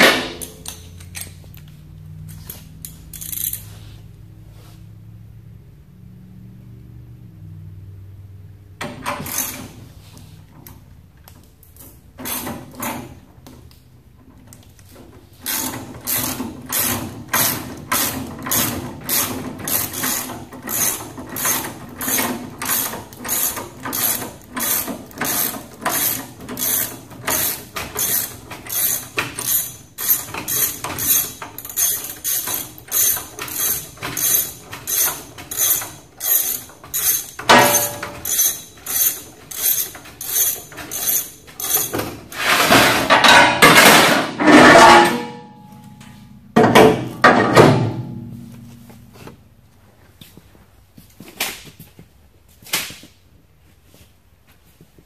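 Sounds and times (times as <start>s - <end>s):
ratchet wrench clicking: 2.2s - 3.7s, 15.4s - 42.0s
rustling scrape: 2.3s - 5.0s, 42.2s - 45.4s.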